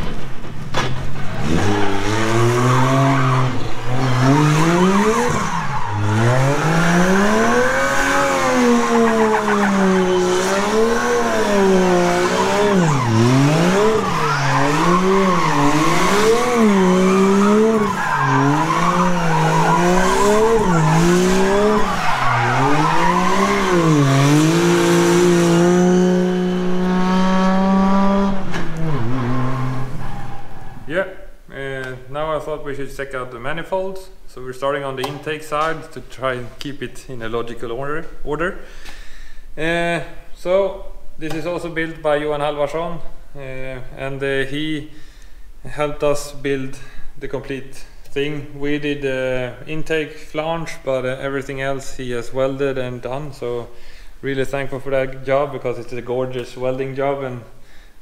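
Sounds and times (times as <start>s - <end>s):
car engine revving: 1.1s - 30.9s
tyres squealing: 1.2s - 25.5s.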